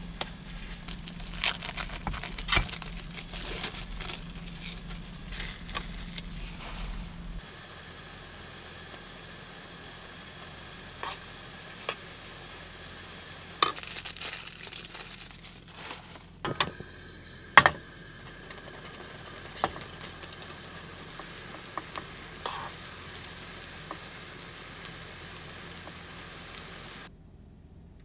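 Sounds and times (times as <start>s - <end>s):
plastic wrapper crinkling and tearing: 0.7s - 7.2s, 13.6s - 16.4s.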